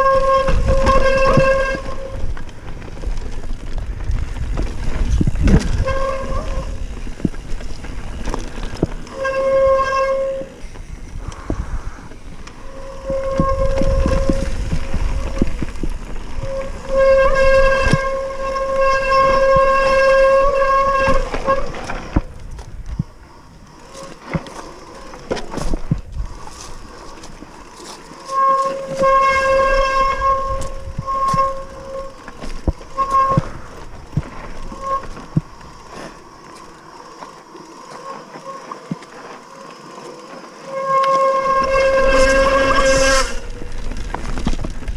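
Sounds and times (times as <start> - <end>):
bike disc brakes squealing: 0.0 - 2.4, 5.0 - 22.2, 23.8 - 44.4
bike rattling over rocks: 0.0 - 44.9.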